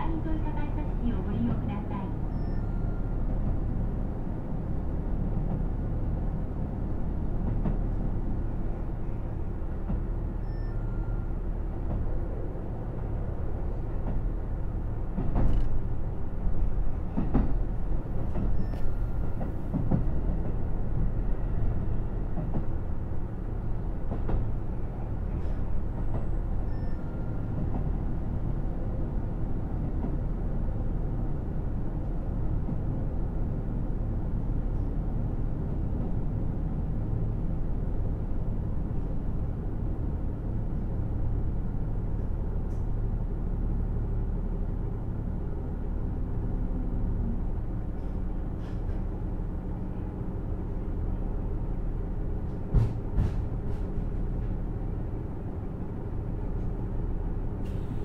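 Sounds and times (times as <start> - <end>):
railcar engine and wheels drone: 0.0 - 58.0.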